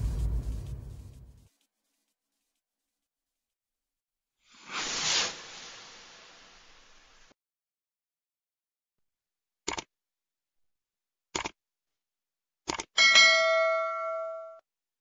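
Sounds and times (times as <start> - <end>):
bell chime: 13.0 - 14.6.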